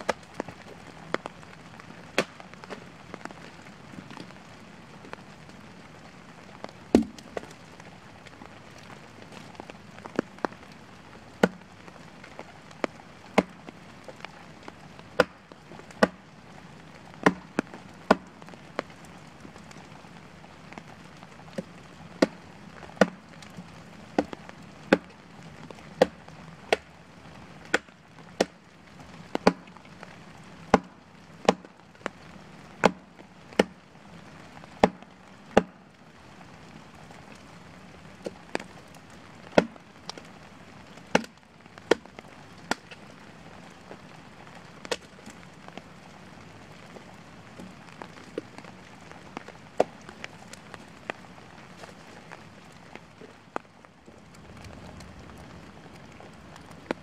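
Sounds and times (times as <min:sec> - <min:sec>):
hatchet chopping into log: 0:17.2 - 0:17.4.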